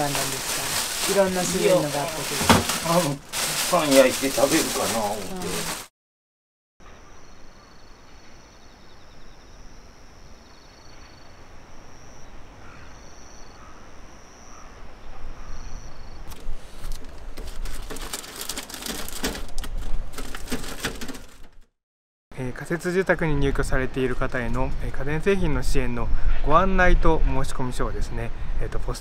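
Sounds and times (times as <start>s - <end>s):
papers rustling through mailbox flap: 0.0s - 5.9s, 16.9s - 21.7s
insects chirping: 6.8s - 16.3s.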